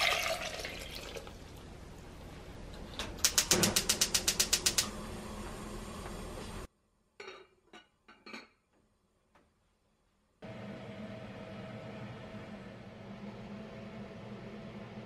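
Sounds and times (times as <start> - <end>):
gas stove igniter clicking: 3.2 - 5.0
gas burner hissing: 3.2 - 6.7.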